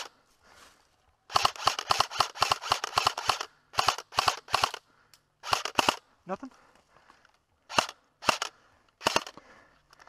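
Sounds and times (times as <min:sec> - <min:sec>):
airsoft rifle firing bursts: 0:01.3 - 0:04.8, 0:05.4 - 0:06.0, 0:07.7 - 0:09.4.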